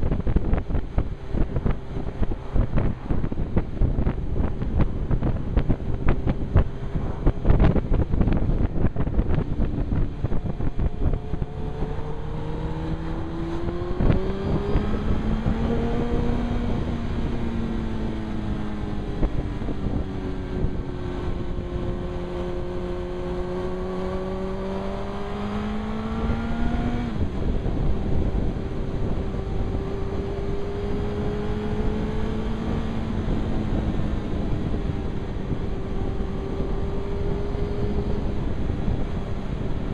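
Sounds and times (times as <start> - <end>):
motorcycle engine: 0.0 - 39.9
wind buffeting microphone: 0.0 - 39.9.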